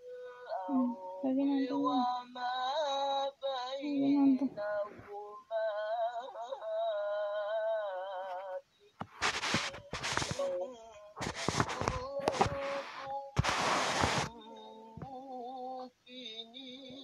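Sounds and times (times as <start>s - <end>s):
person singing long wavering notes: 14.3s - 17.0s.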